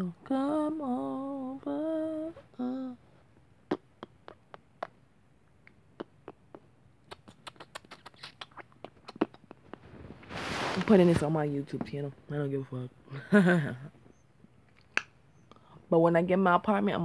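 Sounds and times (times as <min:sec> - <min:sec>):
woman humming: 0:00.0 - 0:04.9.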